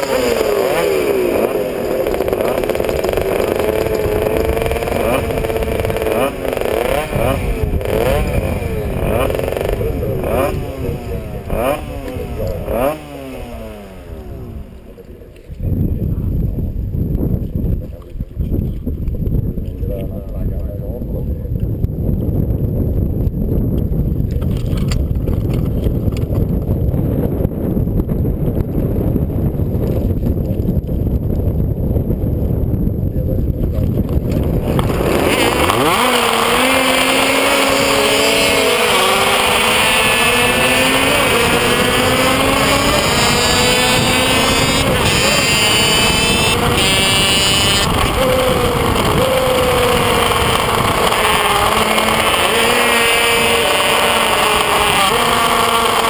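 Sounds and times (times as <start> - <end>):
motorcycle engine revving hard: 0.0 - 14.8, 33.7 - 56.0
motorcycles rumbling: 0.0 - 56.0.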